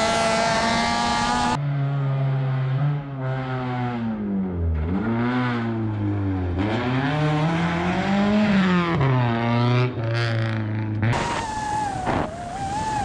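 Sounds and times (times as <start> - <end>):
rally car engine revving: 0.0 - 13.0
wind noise: 11.1 - 13.0
wavering whine: 11.2 - 13.0.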